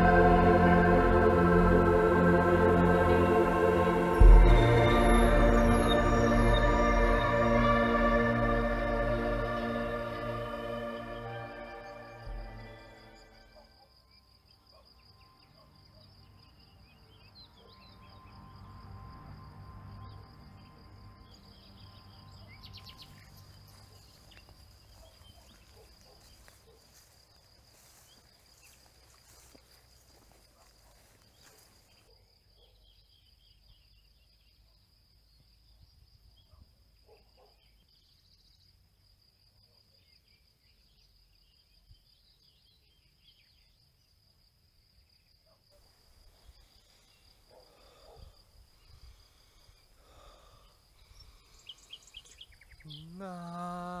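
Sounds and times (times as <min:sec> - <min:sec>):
crickets trilling: 0:11.3 - 0:32.3, 0:43.3 - 0:54.0.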